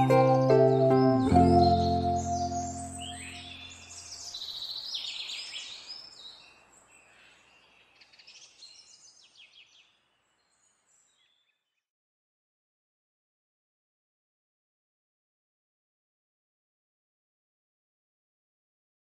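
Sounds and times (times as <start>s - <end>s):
song closing chord: 0.0s - 4.0s
birds chirping: 0.0s - 11.5s.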